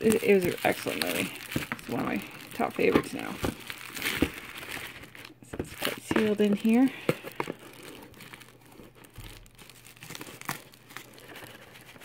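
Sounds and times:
bubble wrap crinkling: 0:00.0 - 0:12.0.

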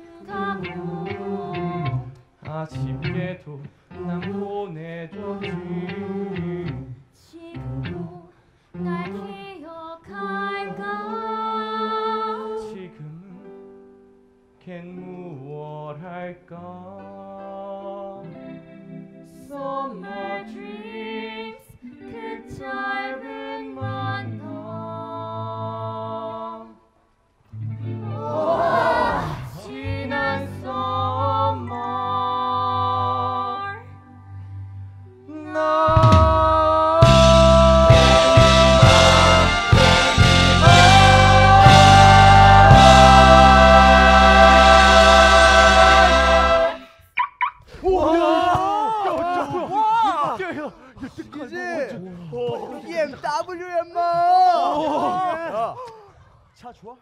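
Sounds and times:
solo voices singing: 0:00.0 - 0:13.4, 0:15.0 - 0:26.8, 0:27.8 - 0:34.1, 0:35.2 - 0:47.0
backing music: 0:27.6 - 0:33.2, 0:35.9 - 0:47.1.

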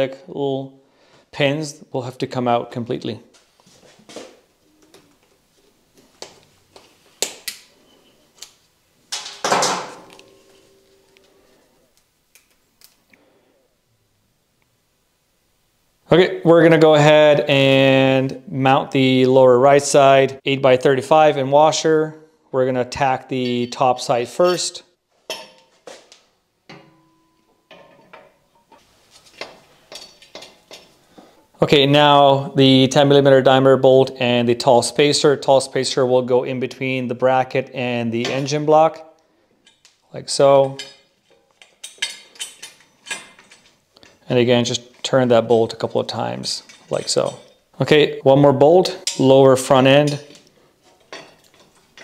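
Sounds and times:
metal ringing tone: 0:10.0 - 0:11.7, 0:23.4 - 0:25.6, 0:26.7 - 0:28.8
light metal clinks and knocks: 0:25.3 - 0:26.1, 0:26.7 - 0:31.0, 0:40.6 - 0:44.2, 0:46.6 - 0:47.8.

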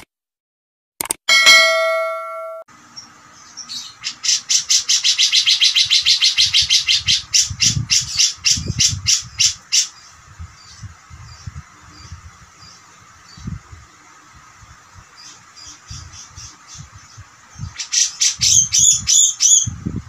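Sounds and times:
bird harsh chattering notes: 0:03.6 - 0:10.2, 0:15.3 - 0:19.8.

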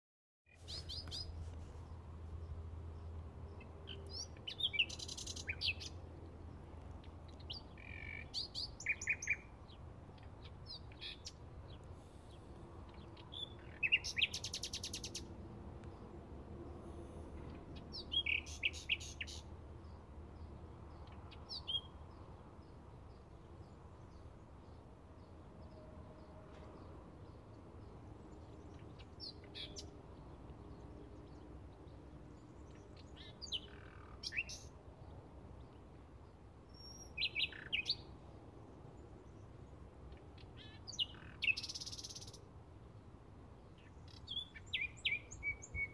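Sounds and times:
bird singing: 0:00.5 - 0:01.4, 0:02.4 - 0:15.3, 0:17.7 - 0:38.2, 0:39.0 - 0:42.5, 0:43.6 - 0:45.9.

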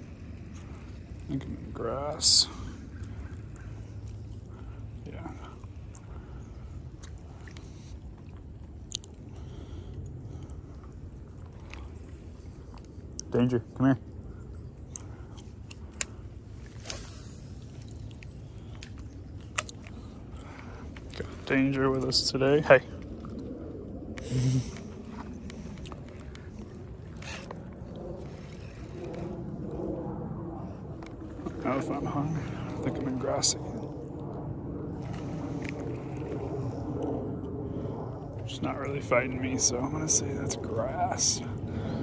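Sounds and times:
fishing reel cranking: 0:00.0 - 0:07.6, 0:25.7 - 0:29.4, 0:34.9 - 0:36.8, 0:38.6 - 0:42.0
low steady rumble: 0:00.0 - 0:42.0.

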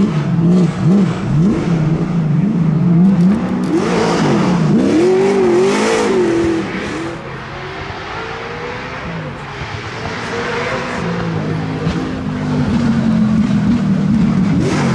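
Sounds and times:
rally car engine revving past: 0:00.0 - 0:14.9.

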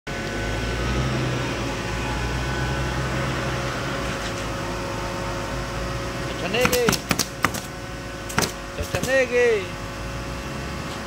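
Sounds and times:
machine humming: 0:00.1 - 0:11.0.

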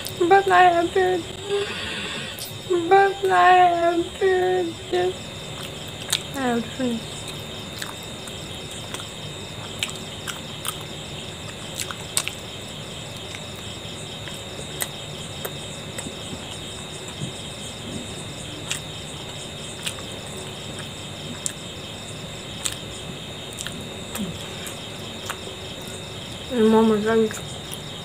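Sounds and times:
crickets trilling: 0:00.0 - 0:28.0
person chewing food: 0:05.5 - 0:06.4, 0:07.2 - 0:12.5, 0:17.9 - 0:21.7, 0:22.6 - 0:26.0.

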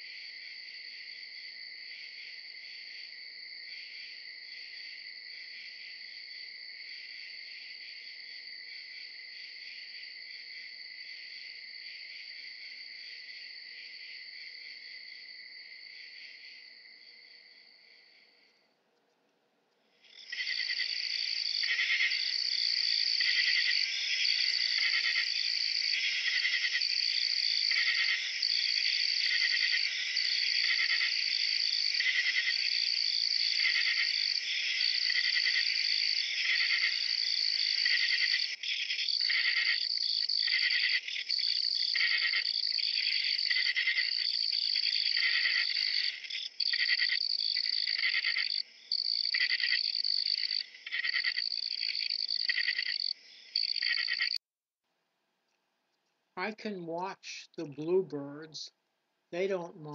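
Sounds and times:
insect chirping: 0:00.0 - 0:18.7, 0:19.8 - 0:54.4
insect high trill: 0:20.1 - 0:54.4.

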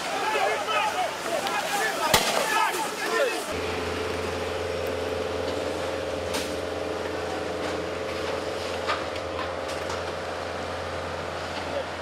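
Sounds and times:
truck engine running: 0:03.1 - 0:12.0.

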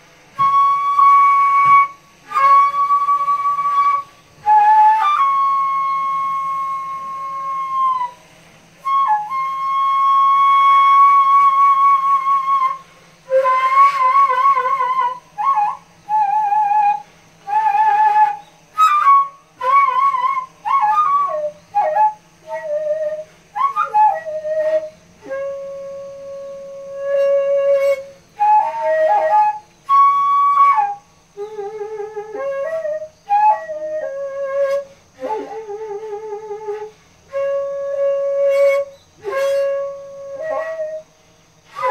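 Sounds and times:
bamboo flute melody: 0:00.0 - 0:41.9.

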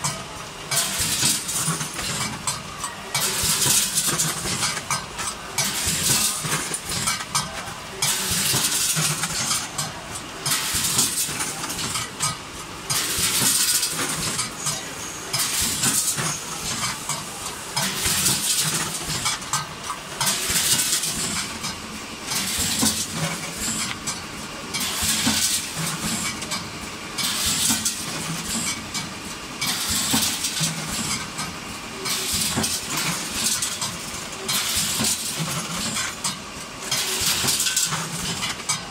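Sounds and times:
packing machine clatter: 0:00.0 - 0:38.9.

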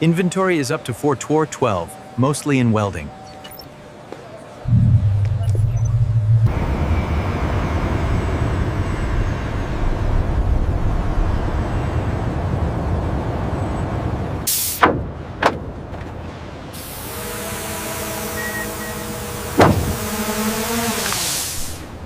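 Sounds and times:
factory machinery rumble: 0:02.8 - 0:17.6
quick knocks: 0:19.6 - 0:20.1.

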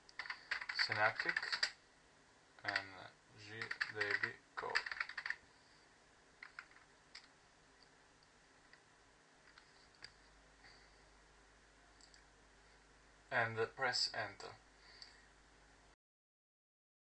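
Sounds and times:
keyboard clicks: 0:00.1 - 0:01.8, 0:03.6 - 0:05.4, 0:06.4 - 0:07.3.

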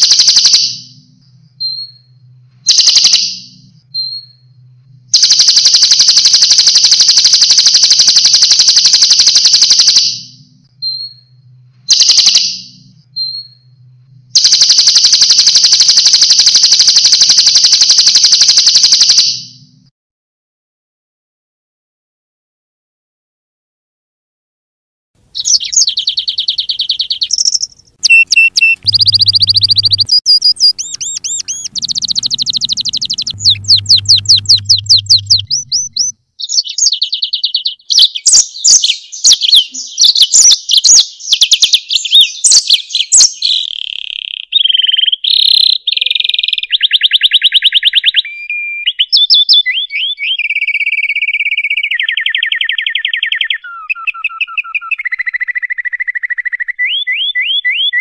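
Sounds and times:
songbirds singing: 0:00.0 - 0:02.9, 0:03.5 - 0:05.3, 0:25.4 - 0:55.6
low hum: 0:00.7 - 0:06.3, 0:10.3 - 0:12.0, 0:12.6 - 0:14.6, 0:27.7 - 0:36.2.

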